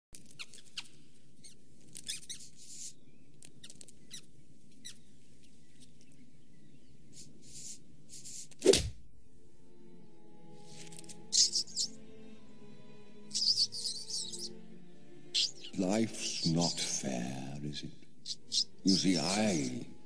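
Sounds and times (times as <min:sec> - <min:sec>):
cartoon mouse squeaking: 0:00.2 - 0:02.9, 0:11.3 - 0:12.0, 0:13.3 - 0:14.5, 0:15.4 - 0:16.9, 0:18.2 - 0:18.7
steady low hiss: 0:00.9 - 0:20.0.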